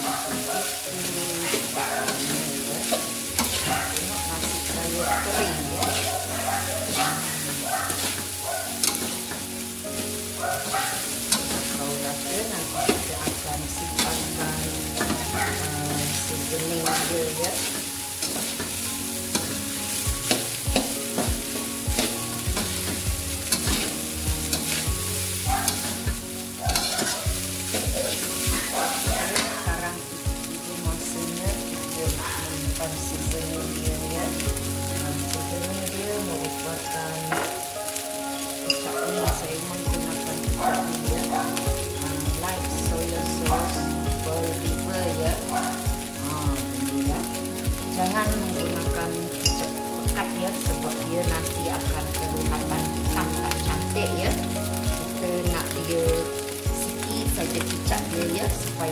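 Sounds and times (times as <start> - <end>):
metal spatula scraping a pan: 0.0 - 9.7, 10.3 - 29.9
rice sizzling in a wok: 0.0 - 58.9.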